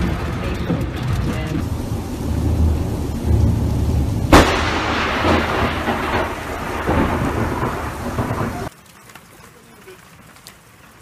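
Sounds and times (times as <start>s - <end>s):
low rumble: 0.0s - 8.7s
thunderclap and rolling thunder: 0.0s - 8.7s
steady rain: 0.0s - 11.0s.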